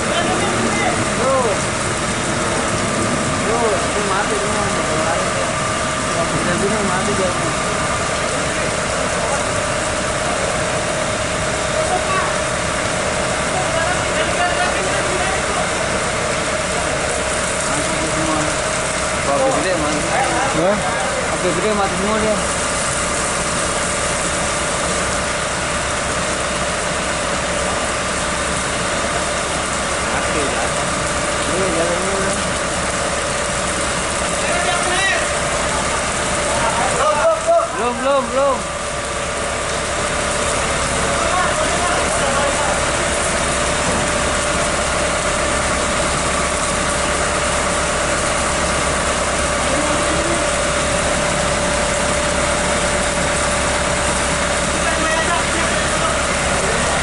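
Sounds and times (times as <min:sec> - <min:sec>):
fire roaring: 0:00.0 - 0:57.0.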